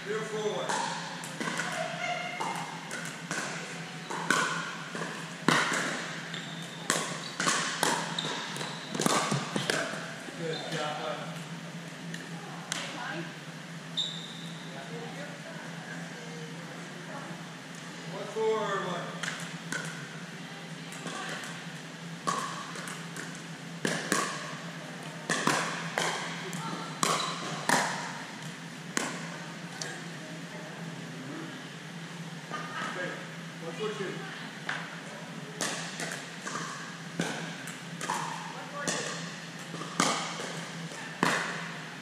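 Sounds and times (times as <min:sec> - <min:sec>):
paddles hitting plastic ball: 0:02.4 - 0:06.2, 0:06.9 - 0:10.0, 0:22.2 - 0:24.5, 0:25.2 - 0:29.3, 0:35.6 - 0:41.7.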